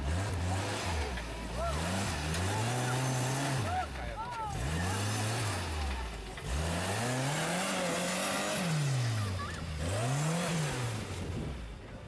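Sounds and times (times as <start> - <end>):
engine revving: 0.0 - 12.0.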